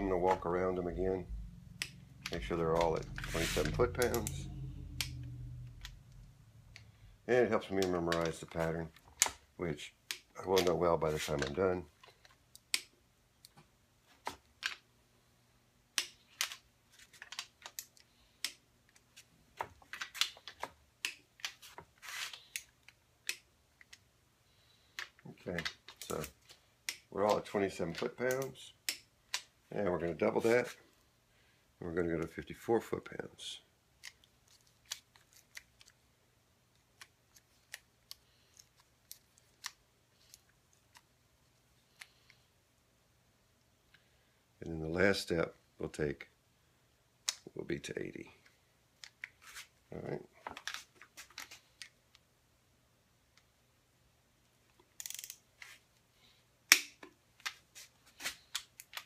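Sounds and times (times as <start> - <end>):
faint low hum: 0.0 - 14.2
torque wrench clicks: 55.0 - 55.4.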